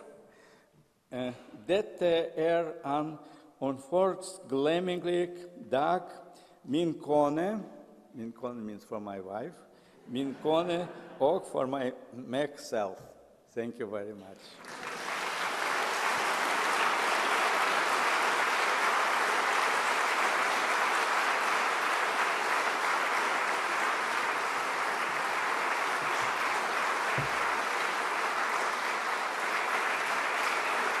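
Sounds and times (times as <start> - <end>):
audience applauding: 14.6 - 31.0.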